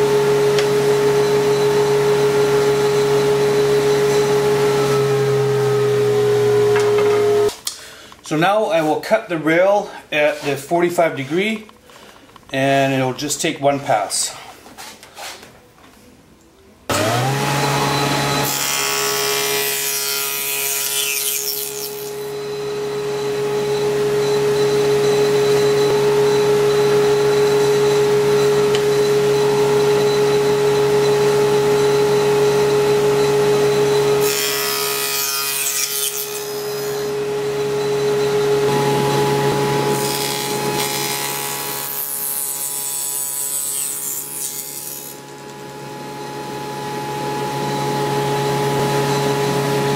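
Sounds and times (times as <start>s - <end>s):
table saw motor whine: 0.0s - 7.5s, 16.9s - 49.9s
saw blade cutting wood: 16.9s - 22.4s, 34.2s - 37.2s, 39.9s - 45.3s.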